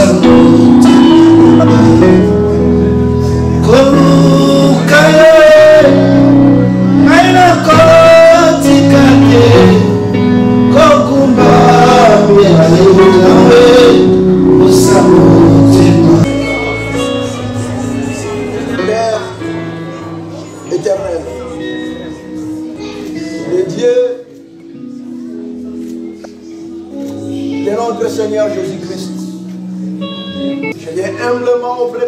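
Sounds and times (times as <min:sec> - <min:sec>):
man singing worship song: 0:00.0 - 0:19.5
keyboard and guitar accompaniment: 0:00.0 - 0:32.0.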